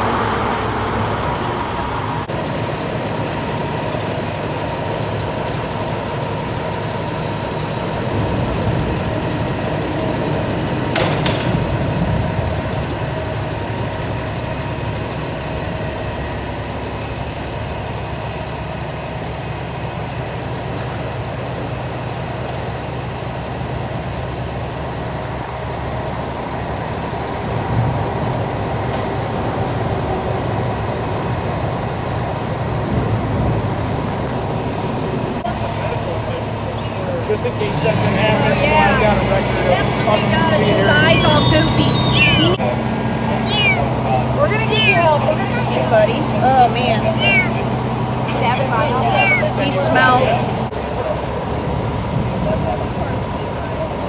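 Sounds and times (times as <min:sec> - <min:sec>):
truck engine idling: 0:35.0 - 0:50.7.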